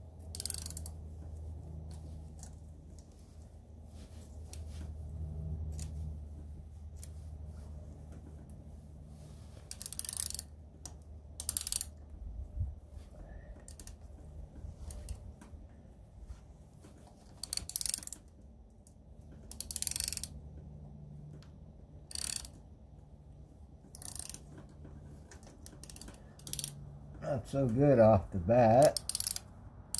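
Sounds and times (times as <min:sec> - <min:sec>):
ratchet wrench clicking: 0:00.3 - 0:01.0, 0:09.6 - 0:12.1, 0:13.7 - 0:14.0, 0:17.4 - 0:18.3, 0:19.5 - 0:20.4, 0:22.1 - 0:22.6, 0:23.9 - 0:24.6, 0:25.6 - 0:26.8, 0:28.9 - 0:29.5.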